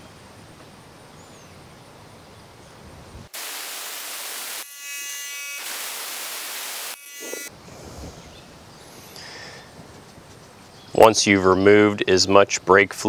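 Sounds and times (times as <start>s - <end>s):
air tool hissing: 5.6s - 7.5s.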